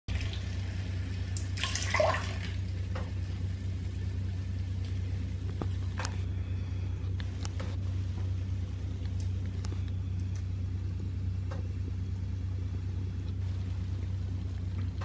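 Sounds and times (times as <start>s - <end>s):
liquid splashing into toilet bowl: 0.1s - 3.3s
water drips: 0.1s - 5.6s
steady low hum: 0.1s - 15.0s.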